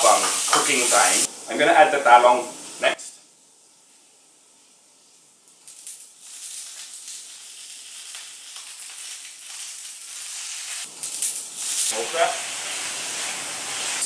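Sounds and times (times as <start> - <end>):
oil sizzling in wok: 0.0 - 1.6, 5.0 - 14.0.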